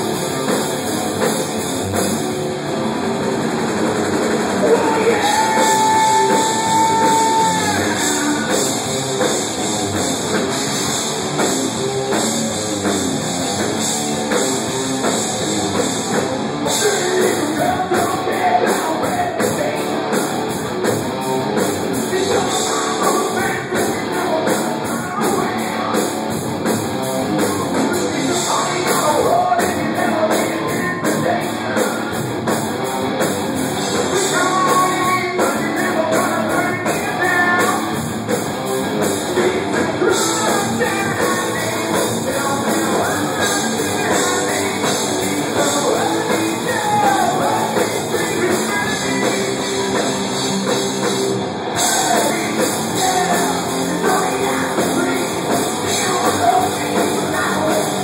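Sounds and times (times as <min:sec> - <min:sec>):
drum kit with cymbals: 0:00.0 - 0:58.0
electric guitars: 0:00.0 - 0:58.0
singer: 0:04.5 - 0:08.6, 0:16.6 - 0:20.2, 0:22.0 - 0:26.2, 0:27.6 - 0:32.2, 0:34.0 - 0:38.0, 0:39.2 - 0:50.0, 0:51.7 - 0:58.0.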